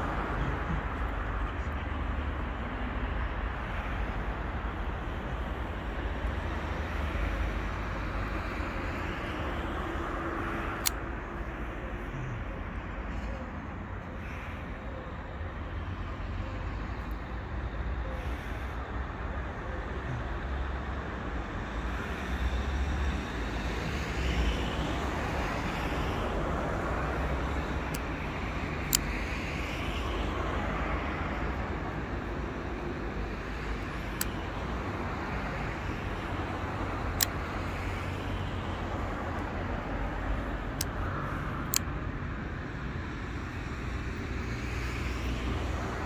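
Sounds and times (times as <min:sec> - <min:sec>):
passing cars: 0:00.0 - 0:46.0
folding knife clicks: 0:10.8 - 0:11.1, 0:28.8 - 0:29.1, 0:37.2 - 0:37.4, 0:41.6 - 0:41.9.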